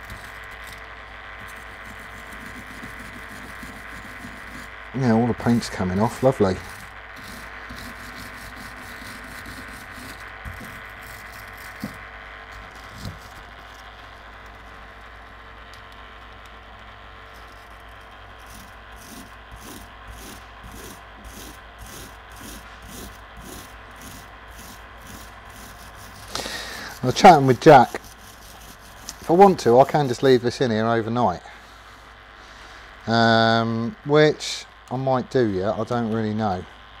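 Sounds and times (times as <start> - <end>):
wire brush scrubbing metal: 1.4 - 4.7, 5.4 - 12.0, 18.4 - 30.6.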